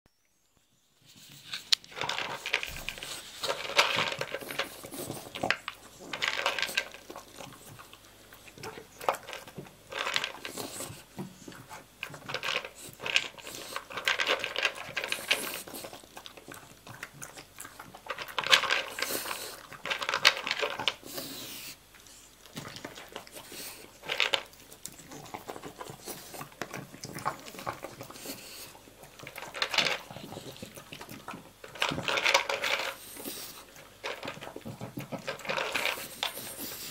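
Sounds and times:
dog chewing: 0:01.2 - 0:36.9
kibble rattling in a bowl: 0:01.3 - 0:21.7, 0:22.4 - 0:36.9.

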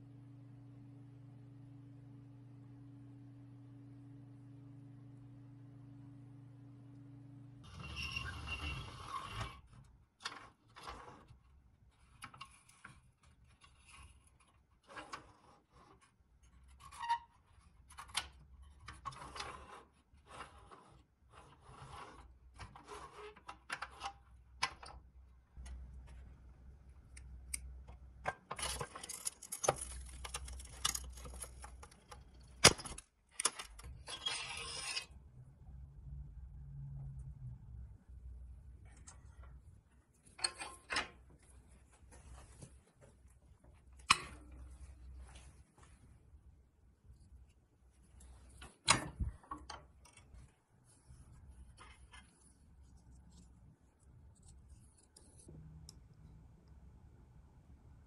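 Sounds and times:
scraping on metal toy car: 0:07.6 - 0:11.4, 0:18.9 - 0:24.2, 0:34.0 - 0:35.2.

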